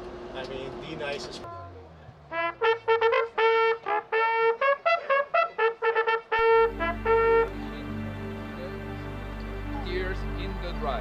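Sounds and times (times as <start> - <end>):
brass hunting horns playing: 2.3 - 11.0.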